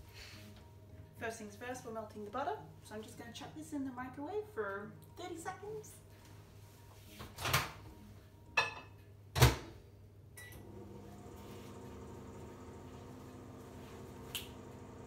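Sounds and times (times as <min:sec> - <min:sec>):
microwave beep: 0:10.4 - 0:10.9
microwave humming: 0:10.4 - 0:15.0.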